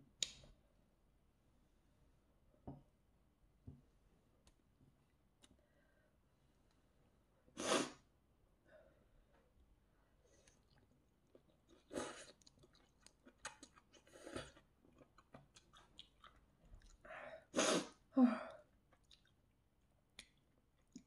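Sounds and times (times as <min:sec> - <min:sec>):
chewing with mouth clicks: 0:10.3 - 0:17.0, 0:18.9 - 0:19.5.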